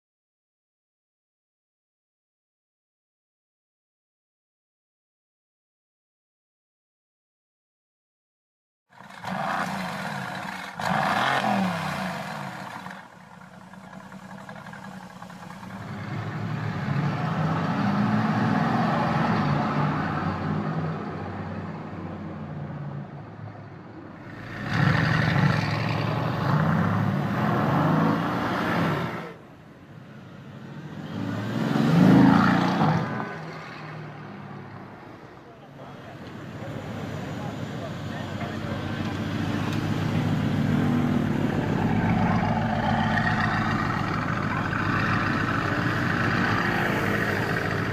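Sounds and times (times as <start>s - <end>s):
car engine starting and revving: 9.0s - 20.7s, 24.2s - 29.4s, 30.6s - 34.2s.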